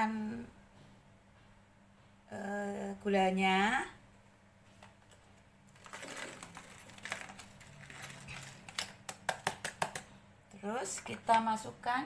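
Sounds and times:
rustle of handling container: 4.7 - 9.0.

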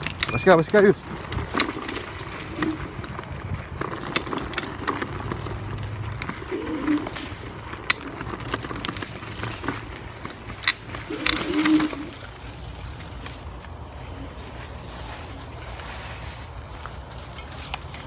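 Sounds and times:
low motor hum: 0.0 - 18.0
scooter frame rattling: 0.0 - 18.0
bird cooing: 1.4 - 16.2.

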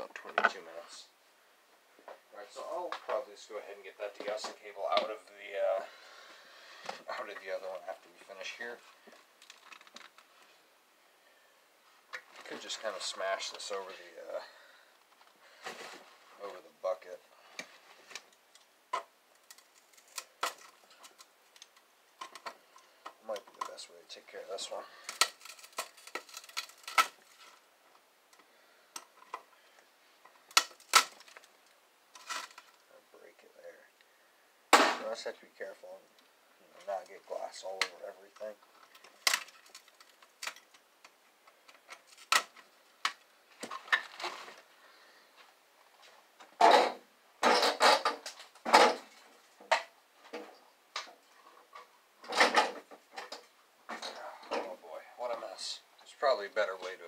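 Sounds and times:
parts scraping and rattling: 4.2 - 10.6, 11.9 - 16.7, 17.4 - 32.9, 36.6 - 44.8, 45.4 - 54.8.

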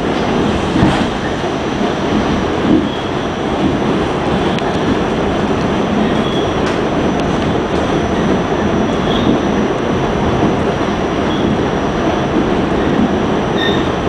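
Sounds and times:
rumble of wheels on rail: 0.0 - 14.0
faint high squeals: 13.6 - 14.0.

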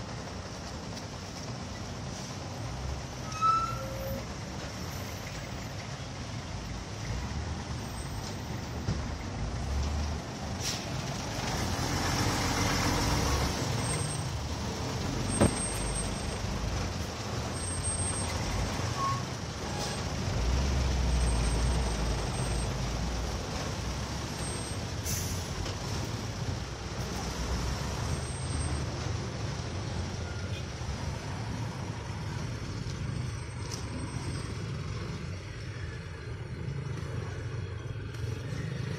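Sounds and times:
engines idling and crawling: 0.0 - 38.9.

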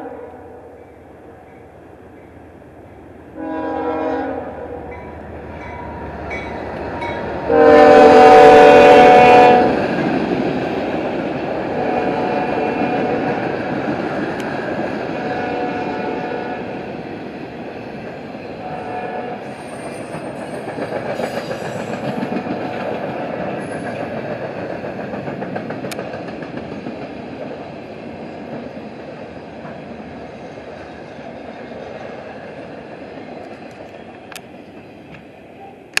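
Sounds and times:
train wheels clattering over rail joints: 19.4 - 30.1.

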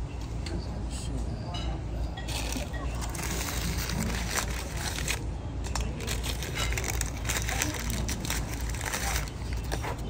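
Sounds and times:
low background hum: 0.0 - 10.0
paper napkin crinkling: 2.4 - 10.0.

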